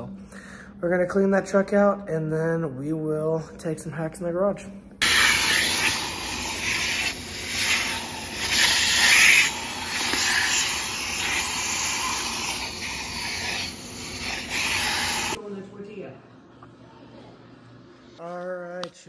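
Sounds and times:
vacuum cleaner sucking: 0:05.0 - 0:15.4.

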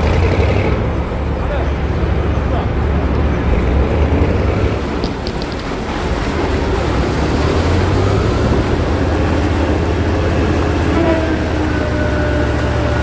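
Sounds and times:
vehicle engine droning: 0:00.0 - 0:13.0
water churning: 0:00.0 - 0:13.0.

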